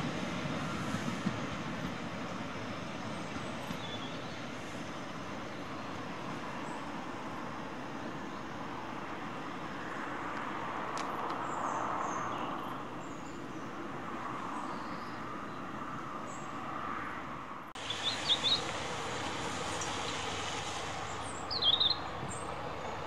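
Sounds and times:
distant diesel locomotive rumble: 0.0 - 23.0
bird chirping: 17.8 - 18.6, 21.4 - 22.4.

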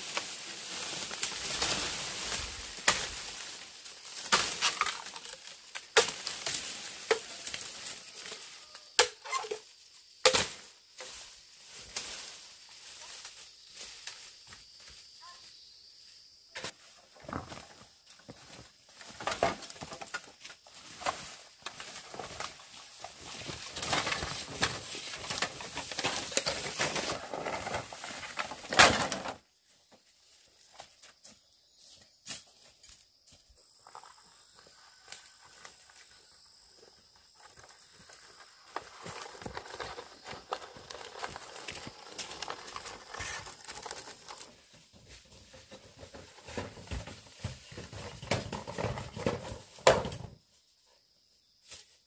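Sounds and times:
dry leaves rustling and crackling: 0.0 - 9.0, 9.6 - 14.4, 18.9 - 30.6, 37.2 - 47.9.

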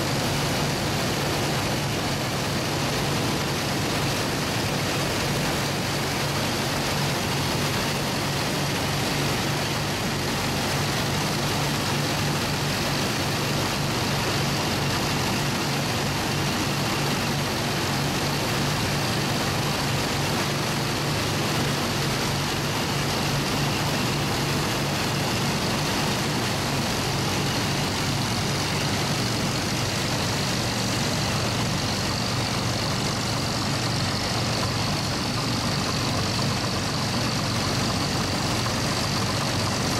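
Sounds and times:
combine harvester machinery humming: 0.0 - 39.9.

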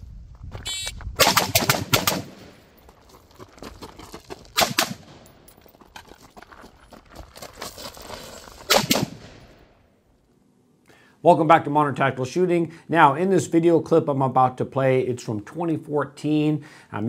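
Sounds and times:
rifle firing rapid bursts: 1.2 - 2.5, 4.6 - 5.2
gunshot echo: 1.2 - 2.6, 4.6 - 5.2, 8.7 - 9.6.

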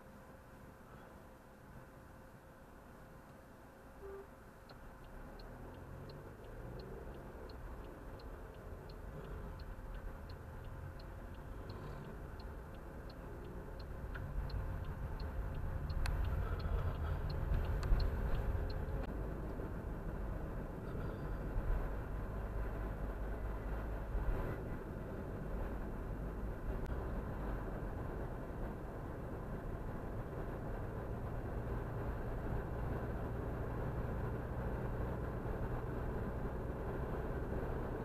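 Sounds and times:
engine and road rumble: 0.0 - 38.0
turn signal ticking: 4.0 - 19.6.

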